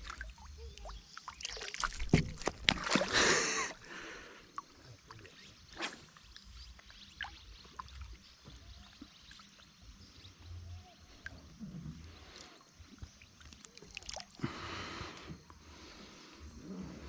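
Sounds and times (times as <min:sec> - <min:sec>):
water splashing and sloshing: 0:00.0 - 0:10.0, 0:11.1 - 0:14.6
water streaming off fish: 0:01.4 - 0:03.8, 0:13.0 - 0:14.4.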